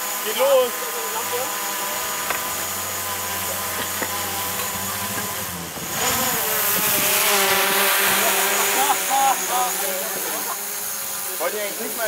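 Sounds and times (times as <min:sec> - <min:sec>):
car engine running: 0:01.2 - 0:07.9.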